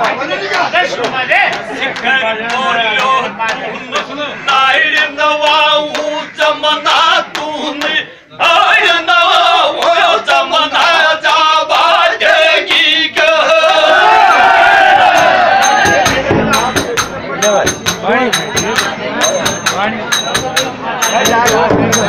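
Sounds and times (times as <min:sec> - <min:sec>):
men singing folk song: 0:01.9 - 0:16.8
frame drum beats: 0:14.8 - 0:22.0.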